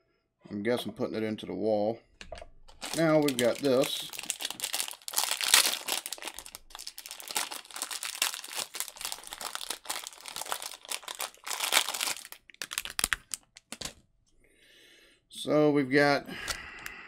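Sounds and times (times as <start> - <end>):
plastic wrapping crinkling: 2.3 - 14.0.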